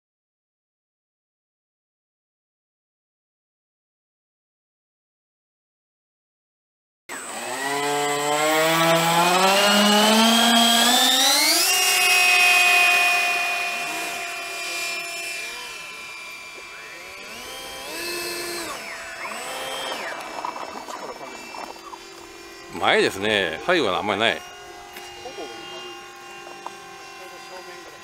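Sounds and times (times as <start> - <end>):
electric ducted fans whining: 7.1 - 28.0.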